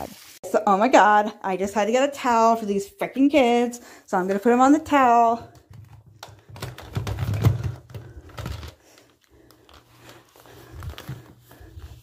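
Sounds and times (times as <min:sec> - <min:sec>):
plastic dolls clicking and knocking: 0:05.5 - 0:09.1.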